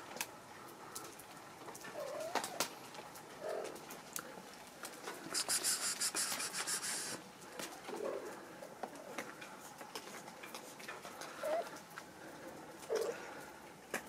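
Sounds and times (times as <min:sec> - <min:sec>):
kitten rustling through plants: 0:01.2 - 0:14.0
faint bird cooing: 0:01.8 - 0:02.7, 0:03.4 - 0:03.8, 0:07.8 - 0:09.2, 0:11.1 - 0:13.5.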